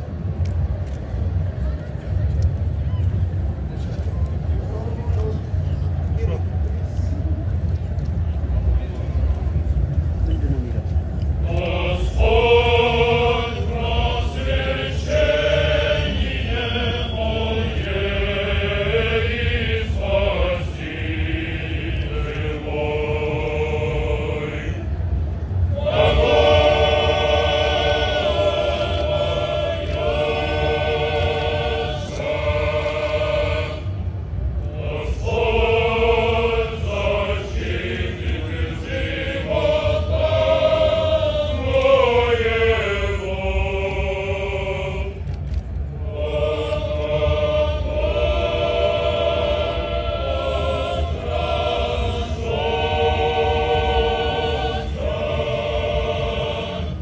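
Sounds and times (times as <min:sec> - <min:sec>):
low rumble: 0:00.0 - 0:57.0
male choir singing a cappella: 0:11.4 - 0:57.0.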